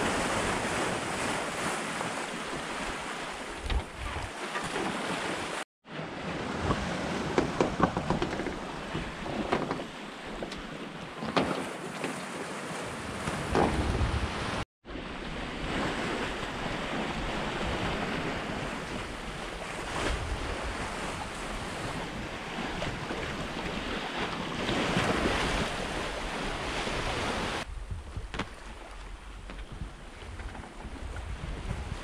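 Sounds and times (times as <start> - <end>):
water rushing along hull: 0.0 - 32.0
wind buffeting microphone: 13.1 - 32.0.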